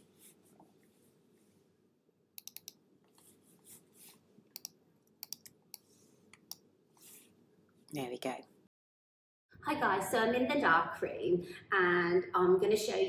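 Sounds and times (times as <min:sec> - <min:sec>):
computer mouse clicks: 0:02.4 - 0:03.3, 0:04.5 - 0:06.6.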